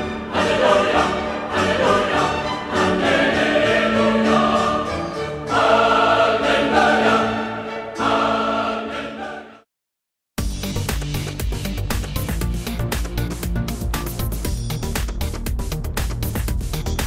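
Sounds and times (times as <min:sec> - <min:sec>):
choir singing with music: 0:00.0 - 0:09.7.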